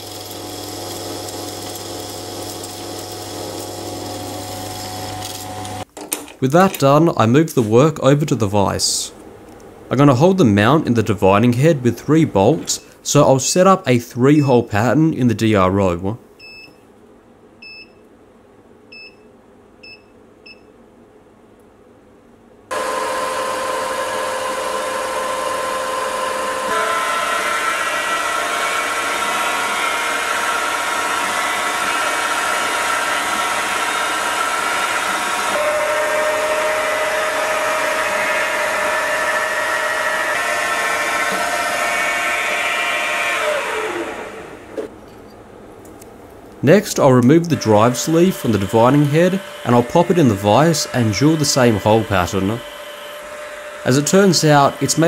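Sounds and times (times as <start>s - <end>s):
milling machine spindle whine: 0.0s - 5.8s, 22.7s - 44.9s, 47.2s - 55.0s.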